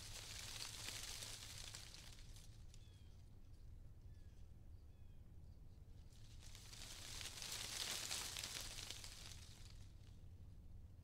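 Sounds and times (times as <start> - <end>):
wind rustling leaves: 0.0 - 2.7, 6.1 - 10.1.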